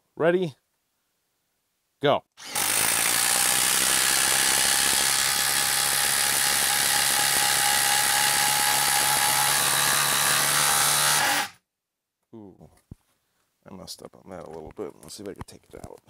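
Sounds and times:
impact driver hammering: 0:02.4 - 0:11.5.

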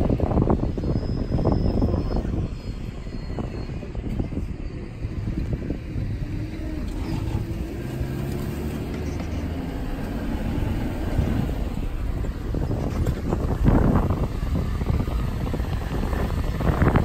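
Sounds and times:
vehicle engines rumbling: 0:00.0 - 0:17.0.

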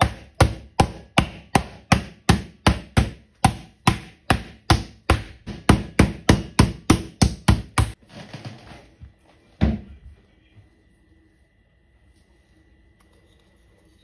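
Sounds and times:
wooden mallet pounding meat: 0:00.0 - 0:08.0.

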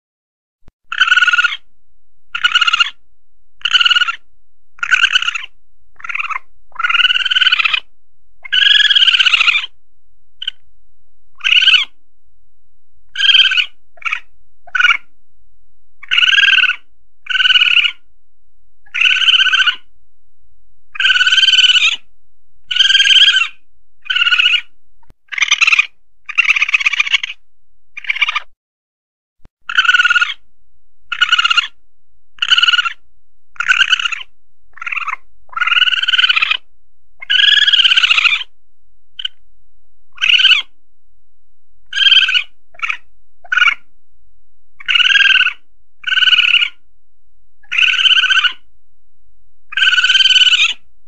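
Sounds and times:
civet harsh cries: 0:00.9 - 0:01.7, 0:02.3 - 0:03.0, 0:03.6 - 0:09.8, 0:10.4 - 0:10.6, 0:11.3 - 0:12.0, 0:13.1 - 0:15.1, 0:16.0 - 0:18.1, 0:18.9 - 0:19.9, 0:20.9 - 0:27.4, 0:28.0 - 0:28.6, 0:29.6 - 0:31.8, 0:32.4 - 0:33.0, 0:33.6 - 0:38.5, 0:39.2 - 0:39.4, 0:40.1 - 0:40.8, 0:41.8 - 0:43.9, 0:44.8 - 0:46.8, 0:47.6 - 0:48.7, 0:49.7 - 0:50.8.

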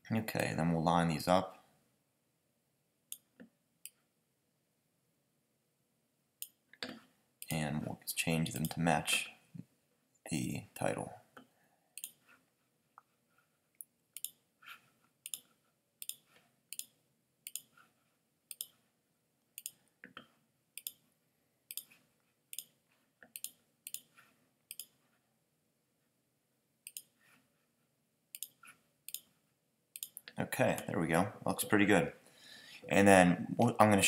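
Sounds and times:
computer mouse clicks: 0:12.0 - 0:12.2, 0:13.8 - 0:14.4, 0:15.2 - 0:17.7, 0:18.5 - 0:18.8, 0:19.6 - 0:21.0, 0:21.7 - 0:24.1, 0:24.7 - 0:25.0, 0:26.8 - 0:27.1, 0:28.3 - 0:29.3, 0:30.0 - 0:30.4.

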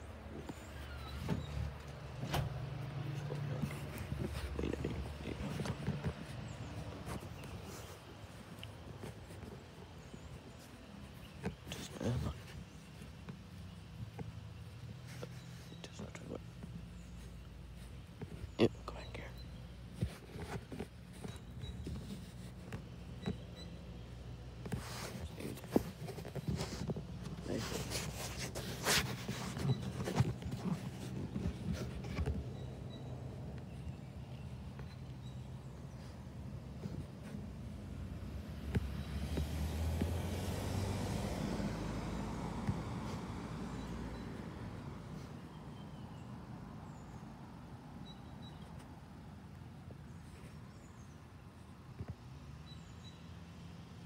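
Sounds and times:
phone rustling: 0:00.0 - 0:39.0.

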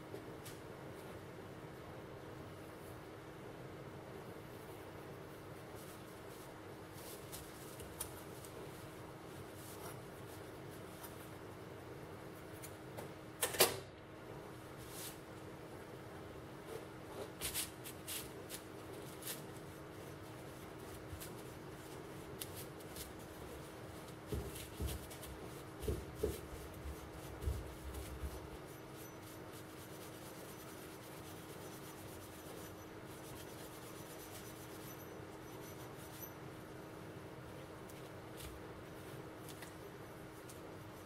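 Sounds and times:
steady low hum: 0:00.0 - 0:41.0
steel wool scratching on metal: 0:26.7 - 0:36.5.

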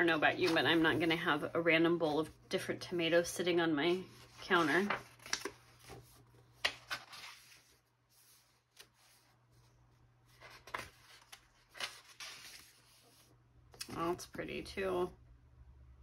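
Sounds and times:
pages turning: 0:00.4 - 0:01.3, 0:04.0 - 0:14.1.

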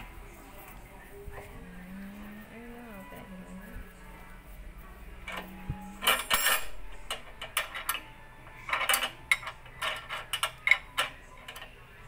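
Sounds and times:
steel tools clinking: 0:05.2 - 0:11.8.

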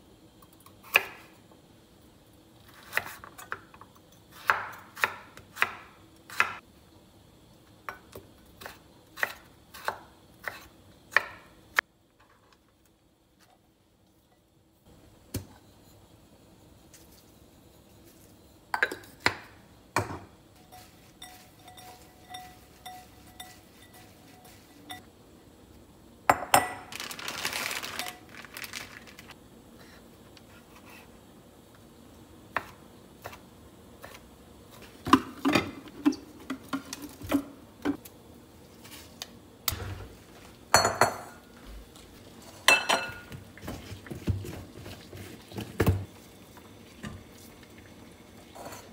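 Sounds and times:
utensils clinking on glass bowl: 0:20.7 - 0:25.0
rustling: 0:26.9 - 0:29.4.

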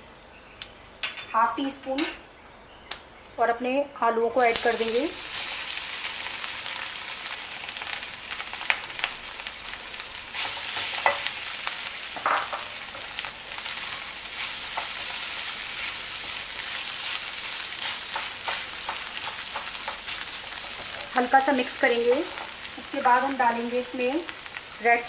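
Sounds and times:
potatoes sizzling in hot oil: 0:04.3 - 0:25.0
spatula tapping and scraping pan: 0:17.8 - 0:21.1.

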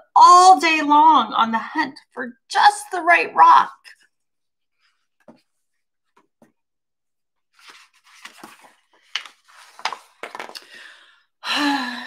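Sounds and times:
book pages rustling: 0:07.5 - 0:10.7.

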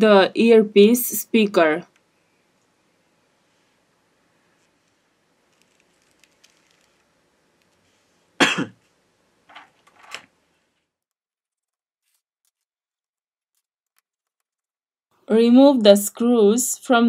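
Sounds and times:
sharp cough: 0:08.4 - 0:08.8.

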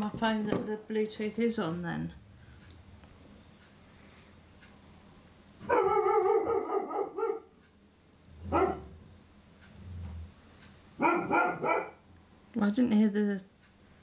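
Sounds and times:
dog barking: 0:05.6 - 0:07.6, 0:08.5 - 0:08.9, 0:11.0 - 0:12.0.

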